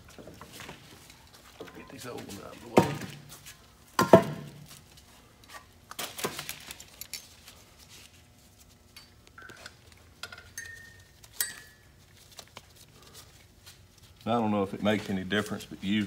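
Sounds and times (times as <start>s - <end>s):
steel parts clinking: 6.6s - 7.5s, 10.2s - 11.9s.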